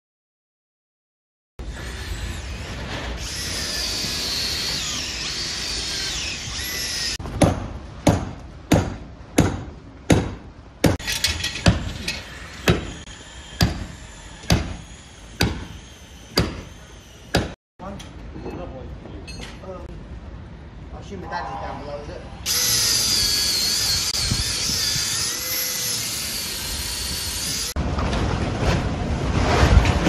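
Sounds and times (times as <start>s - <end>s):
cordless drill boring into wood: 3.2s - 7.2s, 22.5s - 27.7s
hammer striking: 7.3s - 13.0s, 13.6s - 14.8s, 15.4s - 15.8s, 16.4s - 16.7s, 17.3s - 17.6s.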